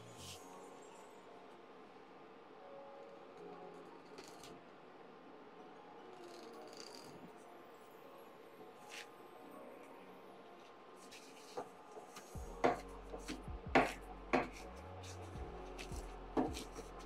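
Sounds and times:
steady low hum: 0:12.4 - 0:17.0.

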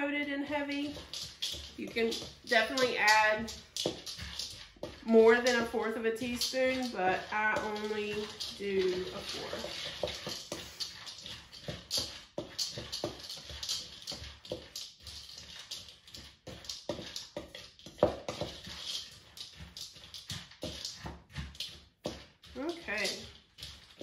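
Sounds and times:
spatula knocking and scraping bowl: 0:00.0 - 0:24.0
seeds shifting: 0:00.3 - 0:15.8.

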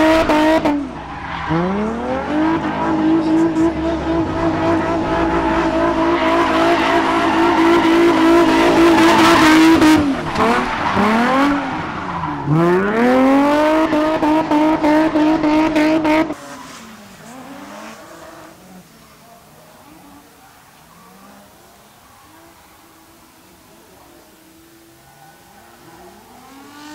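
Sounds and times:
car engine at high revs: 0:00.0 - 0:26.9
faint drifting car engine: 0:00.0 - 0:26.9.

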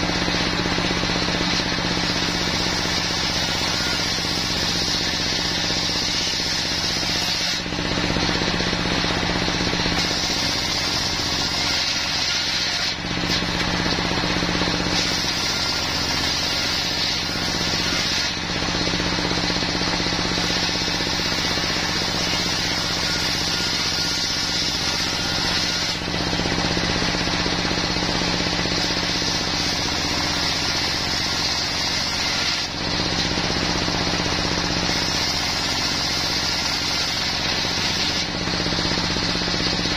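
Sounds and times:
circular saw whine cutting wood: 0:00.0 - 0:39.9
diesel engine drone: 0:07.7 - 0:10.4.

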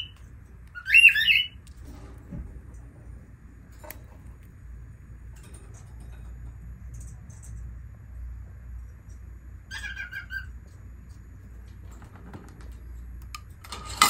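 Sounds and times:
lovebird shrill chirps: 0:00.0 - 0:01.6.

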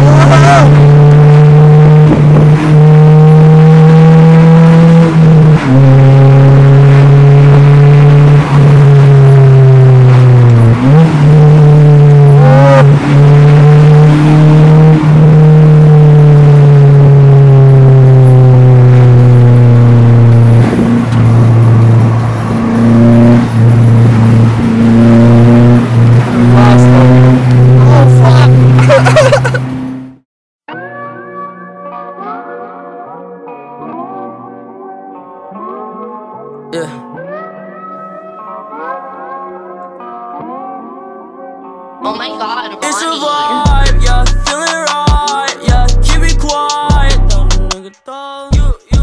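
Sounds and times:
truck engine droning in cab: 0:00.0 - 0:30.2.

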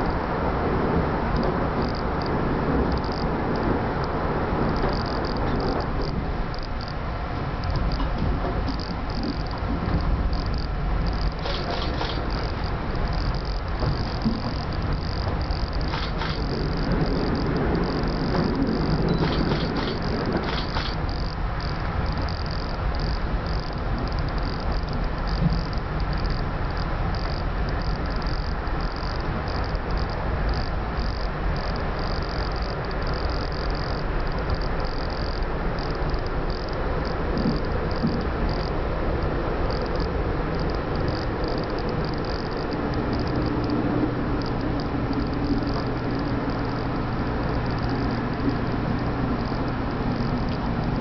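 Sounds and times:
steady low hum: 0:00.0 - 0:51.0
train wheels rumbling on rail: 0:00.0 - 0:51.0.

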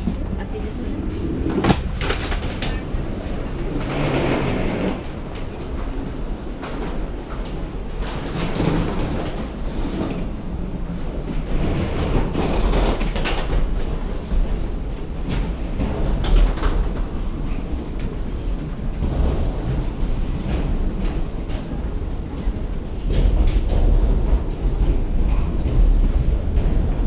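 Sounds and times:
steady low rumble: 0:00.0 - 0:08.2, 0:13.6 - 0:27.0
wheeled suitcases rattling: 0:00.0 - 0:27.0.

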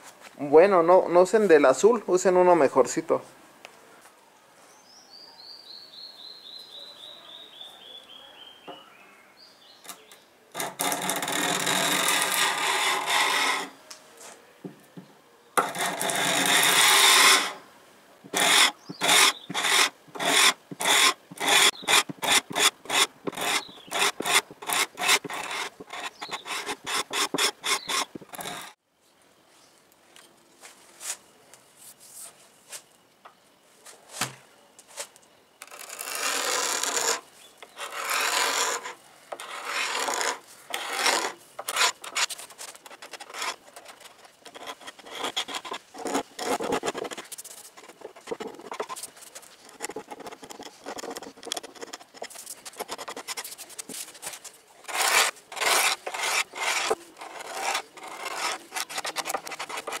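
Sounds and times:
chisel scraping wood finish: 0:09.9 - 0:13.8, 0:15.6 - 0:17.6, 0:18.3 - 0:28.8, 0:35.6 - 1:00.0.

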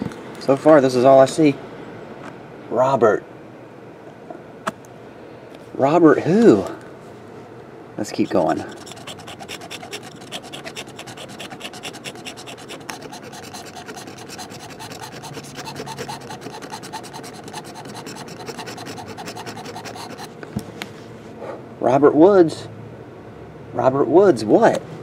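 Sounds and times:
knife blade scraping paper: 0:08.2 - 0:20.4.

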